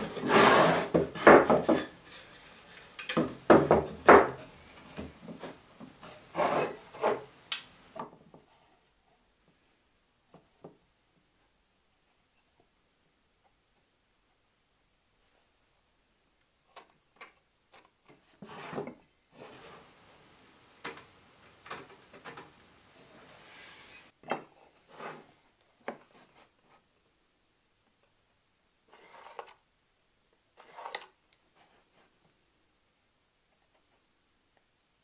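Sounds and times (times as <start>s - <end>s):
pencil scratching on plywood: 0.0s - 2.3s, 6.0s - 7.3s, 28.9s - 29.5s
rubbing on wood: 0.0s - 2.9s
tools knocking on wood: 0.9s - 1.9s, 3.1s - 4.4s.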